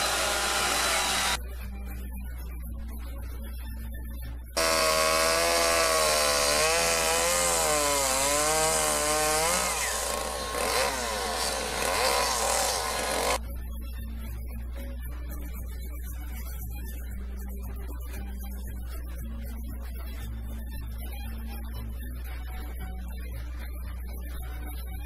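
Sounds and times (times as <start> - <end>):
chainsaw cutting wood: 0.0 - 1.4, 4.6 - 13.4.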